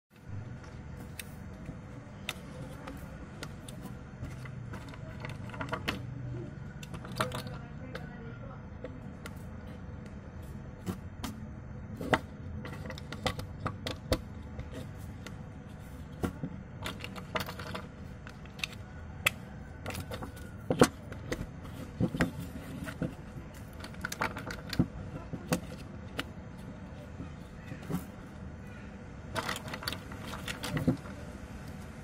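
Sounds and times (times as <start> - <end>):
low background hum: 0.1 - 32.0
toy bricks clicking: 2.2 - 8.1, 12.0 - 28.2, 29.3 - 31.9.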